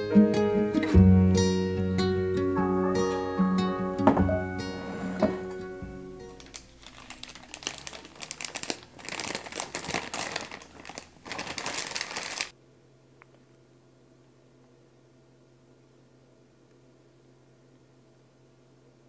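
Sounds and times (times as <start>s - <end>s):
guitar music: 0.0s - 6.5s
plastic bag crinkling: 6.3s - 12.5s.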